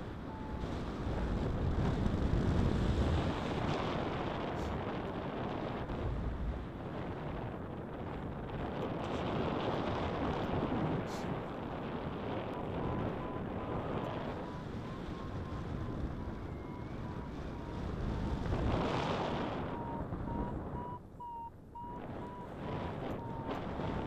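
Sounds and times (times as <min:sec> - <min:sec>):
wind buffeting microphone: 0:00.0 - 0:24.0
variometer beeping: 0:19.4 - 0:24.0.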